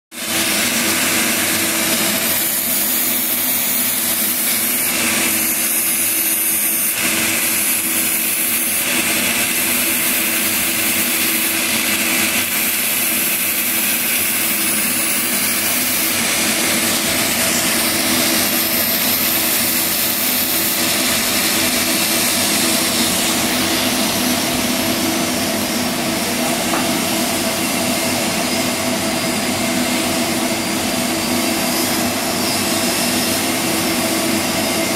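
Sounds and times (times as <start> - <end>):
welding arc hissing: 0.2 - 34.9
constant hum: 20.8 - 34.9.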